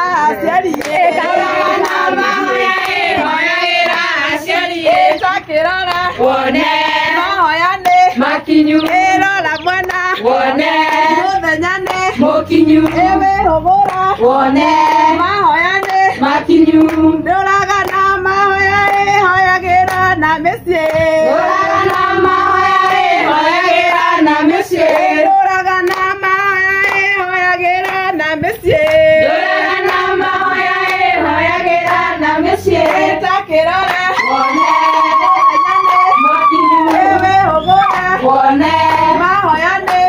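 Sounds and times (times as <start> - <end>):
women singing together: 0.0 - 40.0
hand claps: 0.6 - 5.2, 7.8 - 8.2, 8.8 - 12.2, 12.8 - 14.2, 14.8 - 16.1, 16.8 - 17.0, 17.6 - 18.1, 18.8 - 19.2, 19.8 - 20.1, 21.8 - 22.1, 24.8 - 29.1, 29.8 - 30.2, 32.8 - 33.1, 33.8 - 38.3, 38.9 - 40.0.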